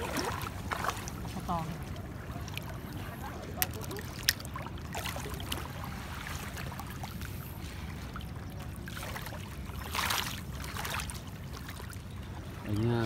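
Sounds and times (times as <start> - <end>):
water splash: 0.0 - 1.8
water lapping as person wades: 0.0 - 13.0.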